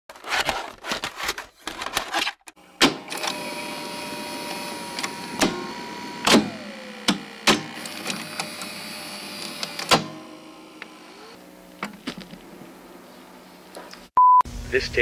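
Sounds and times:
videotape mechanism clunks: 2.8 - 10.3.

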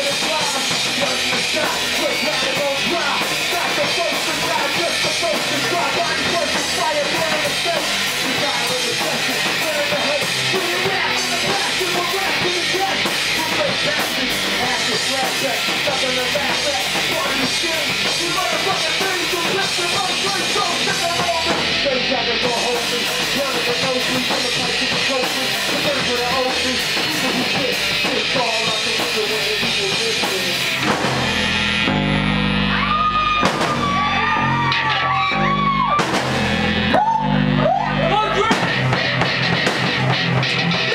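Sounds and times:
person singing into a microphone: 0.0 - 30.8
drum kit with crashing cymbals: 0.0 - 32.0, 33.3 - 34.1, 35.8 - 37.2, 38.4 - 40.9
distorted electric guitar: 0.0 - 40.9
heavy low chord: 30.1 - 32.8.

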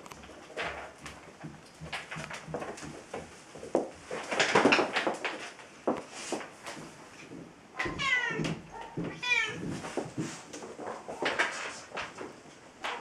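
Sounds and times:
kitten rustling toys: 8.8 - 13.0.

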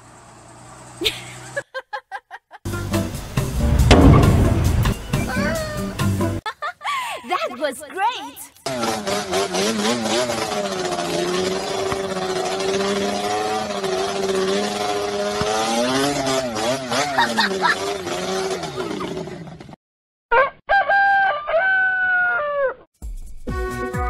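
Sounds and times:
music: 2.7 - 6.4, 23.0 - 24.0
quad bike engine revving: 8.6 - 19.8.

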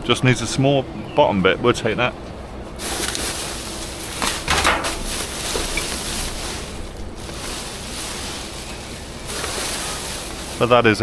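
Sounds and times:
plastic bags rustling: 2.8 - 11.0.

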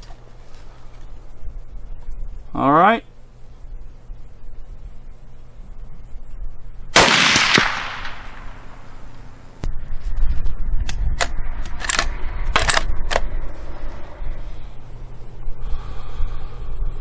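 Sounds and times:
rifle shot with ringing echo: 6.9 - 9.0.

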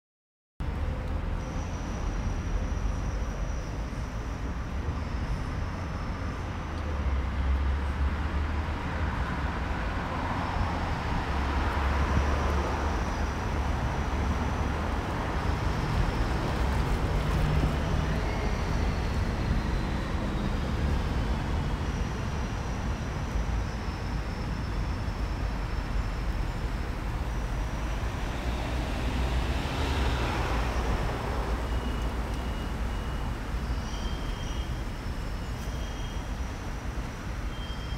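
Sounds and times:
city traffic rumble: 0.6 - 37.9
vehicle passing: 26.6 - 33.0.

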